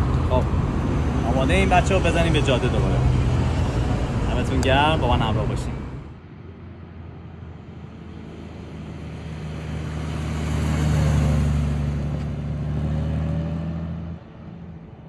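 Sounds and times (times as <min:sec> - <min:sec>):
motorcycle passing by: 0:08.4 - 0:14.2.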